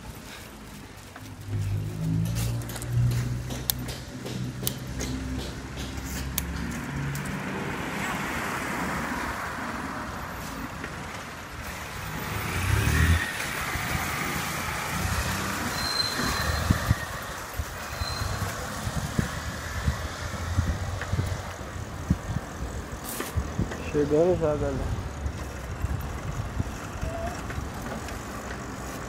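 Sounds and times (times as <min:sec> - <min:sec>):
wind and road rushing noise: 0:00.0 - 0:29.0
low bumps: 0:01.1 - 0:07.6
car passing: 0:01.3 - 0:23.0.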